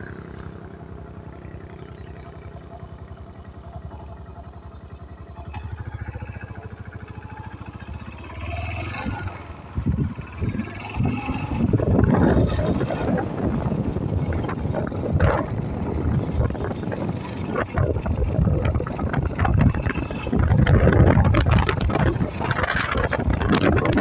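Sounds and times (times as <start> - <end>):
motorcycle engine running: 0.0 - 24.0
wind buffeting microphone: 8.8 - 24.0.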